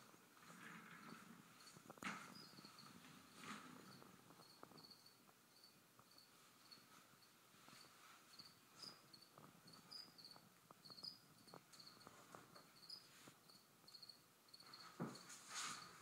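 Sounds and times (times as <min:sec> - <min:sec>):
cricket chirping: 0:01.6 - 0:03.0, 0:03.8 - 0:16.0
rustle and knock: 0:14.6 - 0:16.0.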